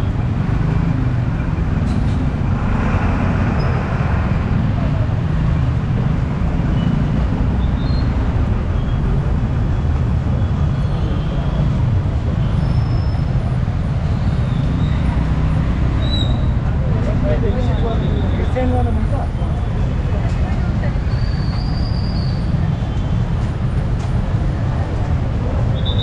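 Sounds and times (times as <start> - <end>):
loud vehicle passing: 0.0 - 7.4
city street traffic: 0.0 - 26.0
vehicles on wet road: 0.0 - 26.0.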